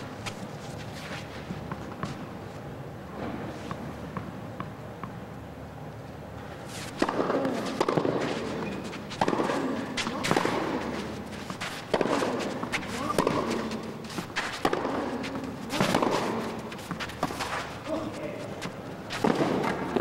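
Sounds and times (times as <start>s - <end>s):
racket striking ball: 6.9s - 20.0s
tennis ball bouncing on clay: 7.0s - 8.5s, 9.1s - 11.0s, 11.6s - 20.0s.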